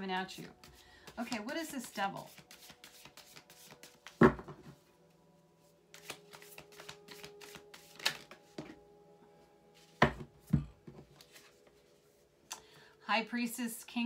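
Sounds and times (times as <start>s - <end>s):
cards shuffling: 1.1s - 4.2s, 5.9s - 8.7s.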